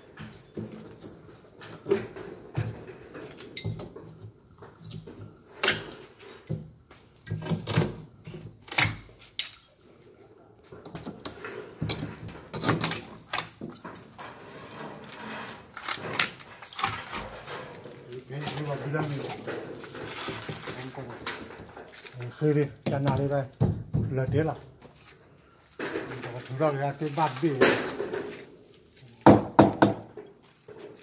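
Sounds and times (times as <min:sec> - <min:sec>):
hammer knocking nails into wood: 0:29.2 - 0:30.1.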